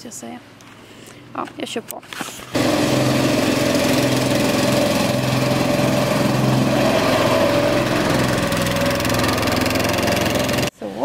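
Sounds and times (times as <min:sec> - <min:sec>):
small petrol engine running: 0:02.5 - 0:10.7.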